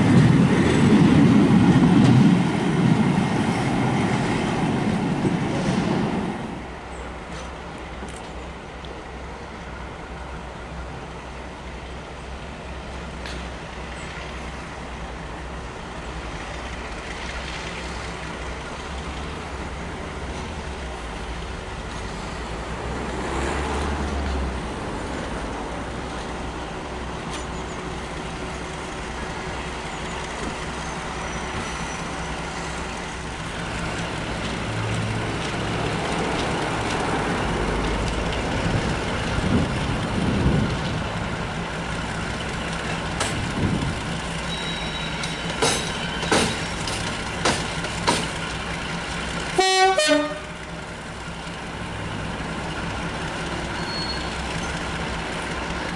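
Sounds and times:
diesel locomotive running: 0.0s - 55.9s
short sharp clanks: 45.1s - 48.4s
loud horn toot: 49.6s - 50.6s.

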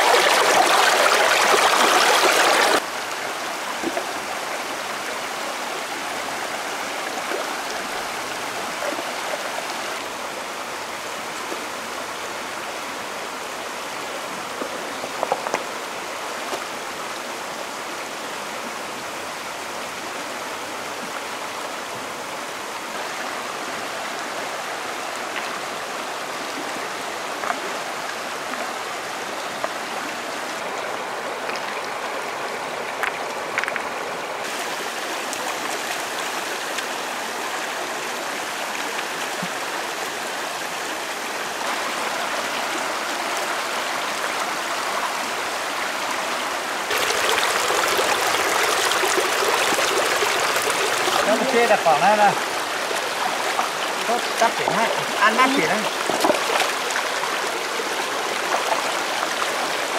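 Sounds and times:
stream rushing over stones: 0.0s - 59.9s
stones knocking: 15.2s - 15.6s, 55.9s - 56.8s.

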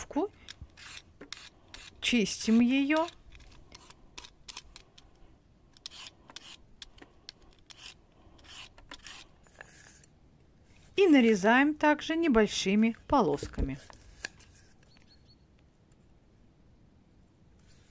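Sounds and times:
peeler scraping a carrot: 0.0s - 5.0s, 5.8s - 10.1s.

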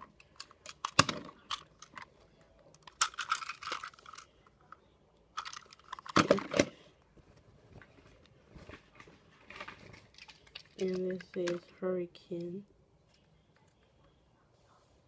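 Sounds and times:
plastic toy clicks and knocks: 0.0s - 2.1s, 2.7s - 4.3s, 5.4s - 6.7s, 10.1s - 11.6s
rustling: 7.2s - 11.6s.

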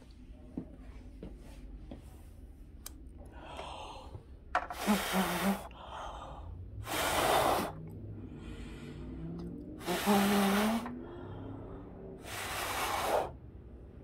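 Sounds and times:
soft breathing: 3.2s - 13.8s
forceful blows of breath: 3.3s - 14.0s.

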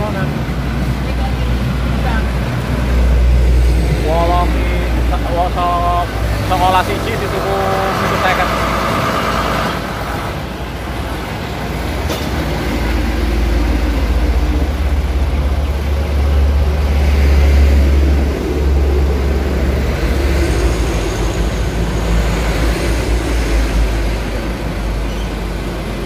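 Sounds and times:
diesel truck engine idling: 0.0s - 26.0s.

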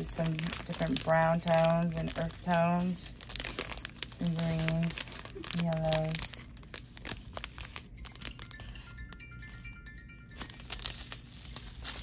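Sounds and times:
plastic bags crinkling: 0.0s - 12.0s
steady high tones ringing: 7.6s - 12.0s.

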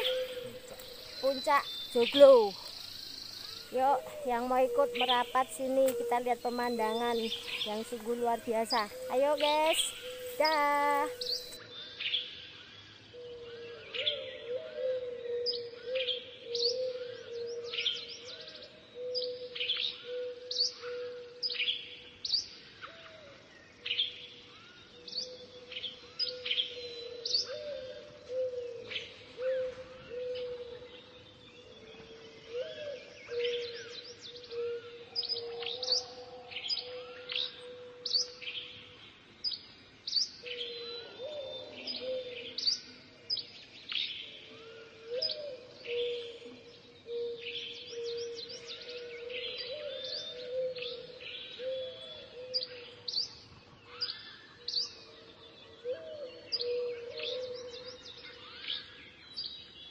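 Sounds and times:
birds chirping: 0.0s - 11.6s.

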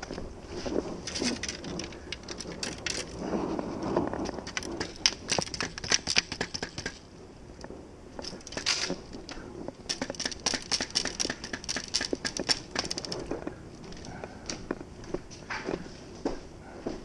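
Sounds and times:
fishing reels clicking: 9.9s - 13.1s.

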